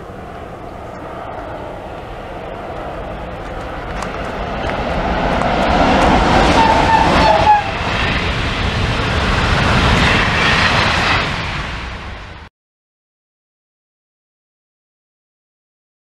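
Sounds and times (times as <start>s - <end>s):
electric train passing at speed: 0.0s - 12.5s.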